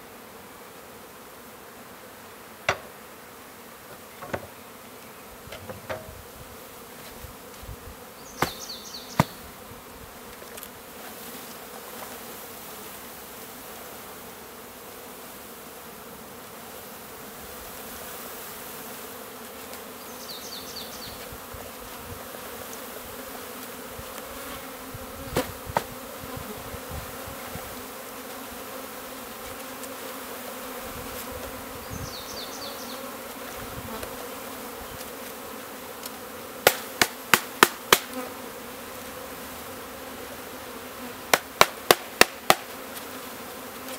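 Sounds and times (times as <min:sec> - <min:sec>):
honeybees buzzing: 0:00.0 - 0:43.9
sharp knocks: 0:02.7 - 0:03.0, 0:03.9 - 0:04.6.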